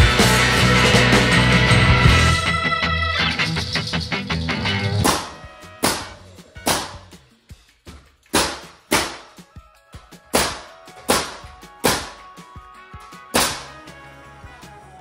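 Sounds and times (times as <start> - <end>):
nail gun shots: 5.0 - 7.1, 8.3 - 9.4, 10.4 - 12.2, 13.4 - 13.8.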